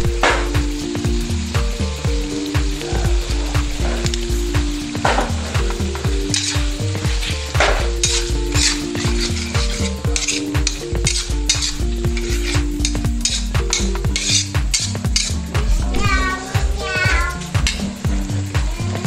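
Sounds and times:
chicken sizzling in a wok: 0.0 - 19.0
metal spatula scraping wok: 5.0 - 19.0.

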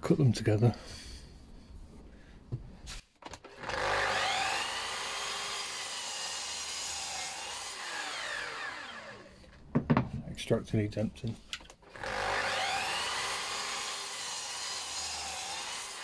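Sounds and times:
mitre saw cutting wood: 3.5 - 9.5, 11.9 - 16.0.

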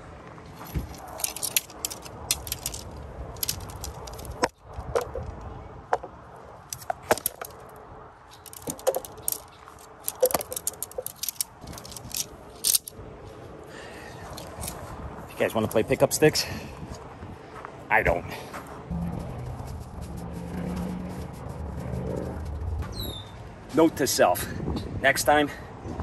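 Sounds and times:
tent poles clacking and rattling: 0.6 - 5.4, 6.0 - 13.0, 14.3 - 14.8.

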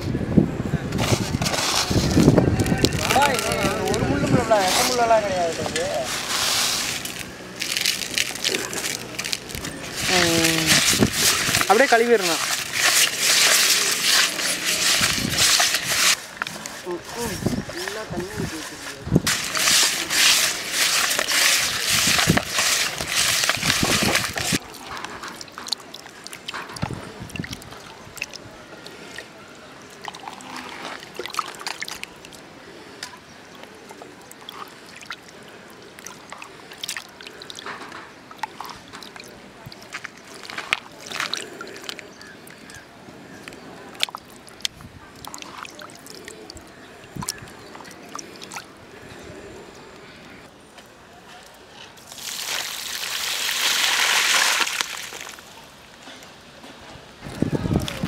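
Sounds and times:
water sloshing in a steel bowl: 5.6 - 17.9, 18.5 - 42.8, 43.5 - 49.0.

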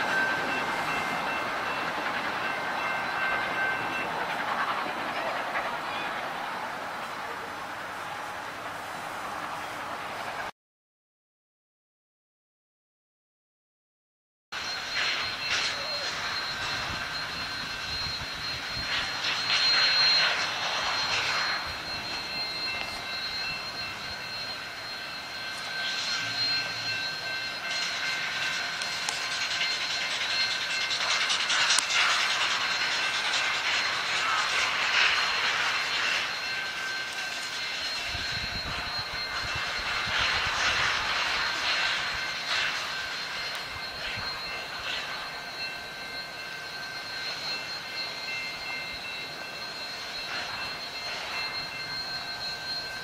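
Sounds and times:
steam hissing: 0.0 - 10.5, 14.6 - 53.0
high whining tones: 14.6 - 53.0.

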